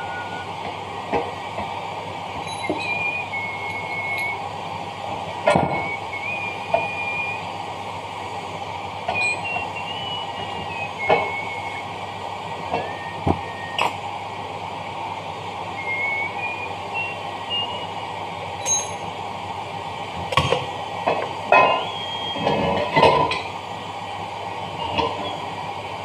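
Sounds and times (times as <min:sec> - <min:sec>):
workshop hum: 0:00.0 - 0:26.0
steel parts clinking: 0:02.5 - 0:03.0, 0:18.6 - 0:19.1.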